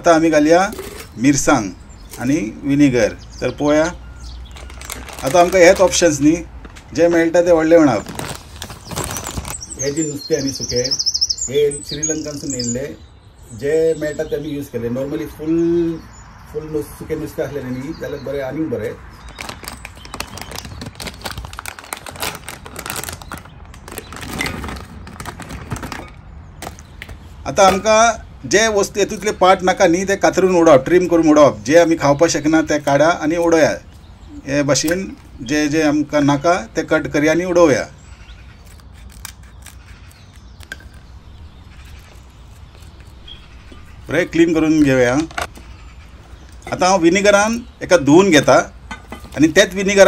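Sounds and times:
plastic pouch crinkling: 4.4s - 6.8s, 7.6s - 9.8s, 19.2s - 27.2s
dried fish shifting: 4.4s - 9.9s, 19.3s - 27.9s.

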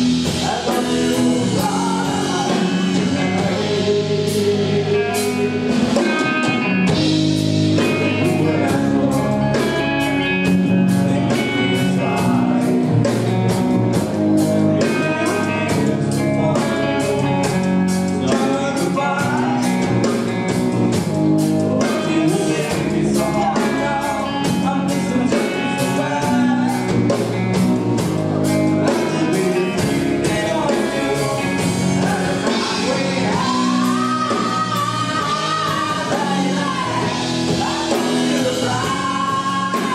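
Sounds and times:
man singing: 0.0s - 14.0s, 14.6s - 39.9s
drum kit beat: 0.0s - 39.9s
electric guitars: 0.0s - 39.9s.

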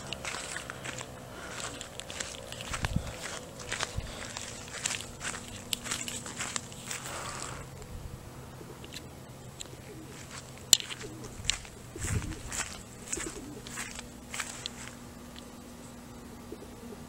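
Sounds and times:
faint low hum: 0.0s - 17.0s
scattered clicks: 8.8s - 11.8s.

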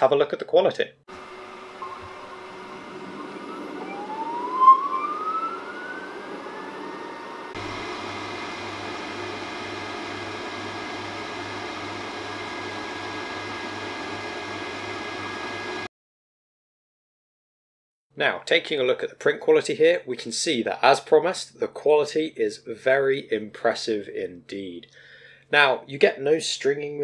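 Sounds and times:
steady hum with low pulse: 1.1s - 4.5s
motor whine spinning up: 1.1s - 15.9s.

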